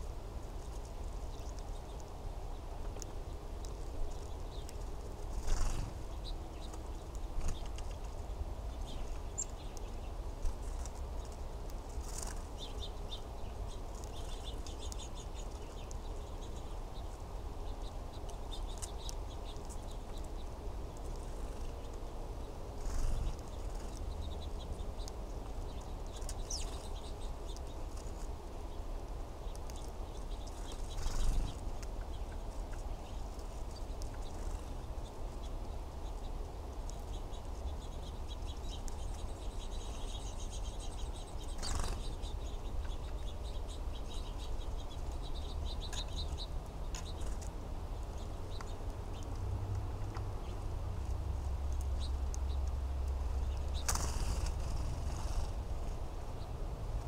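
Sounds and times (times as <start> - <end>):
sparrows chirping: 0.0 - 57.0
bird wing flutters: 53.8 - 55.6.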